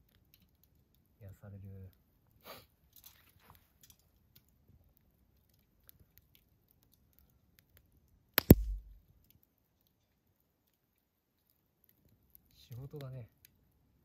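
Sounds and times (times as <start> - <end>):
campfire crackling: 0.0 - 14.0
dull thump: 8.4 - 8.9
sharp loud clicks: 8.4 - 9.0.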